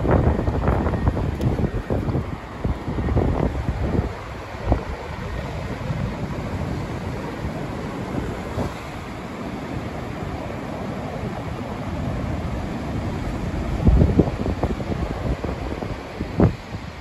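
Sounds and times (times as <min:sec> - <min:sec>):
wind on microphone: 0:00.0 - 0:17.0.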